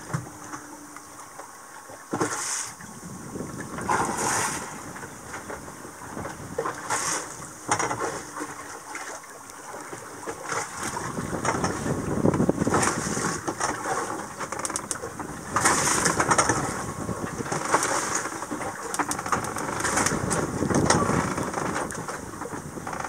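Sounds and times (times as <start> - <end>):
sea water splashing: 0.0 - 23.0
wind noise on microphone: 2.8 - 8.4, 10.5 - 23.0.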